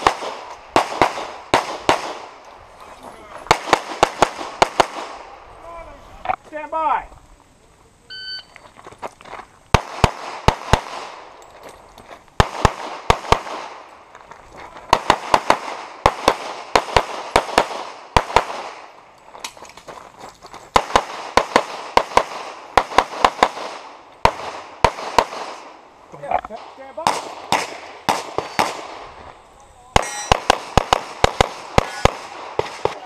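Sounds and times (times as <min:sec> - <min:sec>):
shot timer beep: 0:08.1 - 0:08.6
pistol shots with echo: 0:09.8 - 0:11.3, 0:26.6 - 0:29.1, 0:29.9 - 0:33.0.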